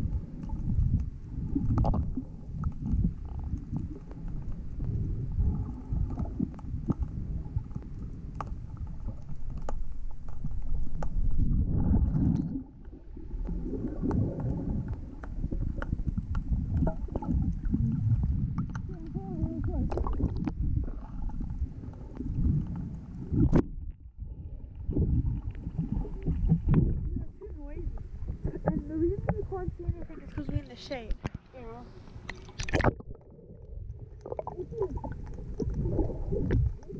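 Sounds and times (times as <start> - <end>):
faint clicks underwater: 0.0 - 24.0, 25.4 - 36.9
muffled underwater rumble of water: 0.0 - 36.9.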